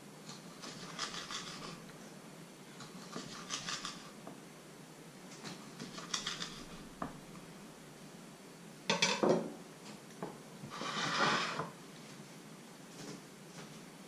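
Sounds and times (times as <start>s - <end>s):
knife clattering on wooden table: 8.9s - 9.5s
wooden board scraping tabletop: 10.6s - 11.8s.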